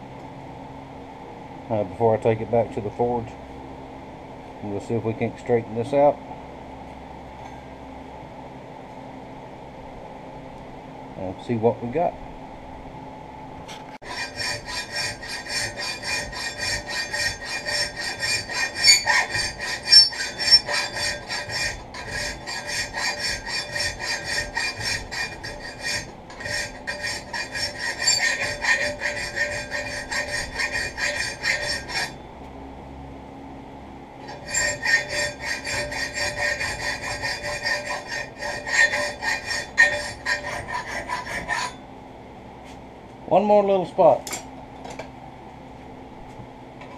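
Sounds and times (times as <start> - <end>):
hand file rasping on steel: 14.0 - 32.2, 34.3 - 41.8.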